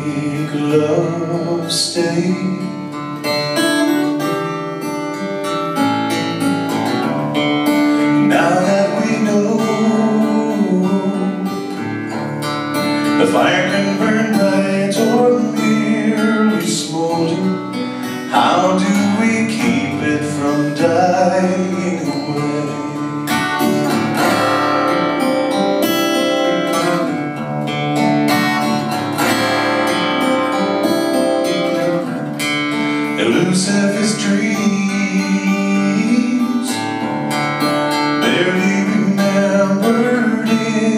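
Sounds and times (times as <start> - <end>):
man singing: 0.0 - 3.4, 7.9 - 12.2, 12.8 - 27.4, 32.8 - 37.1, 38.0 - 40.9
acoustic guitar: 0.0 - 40.9.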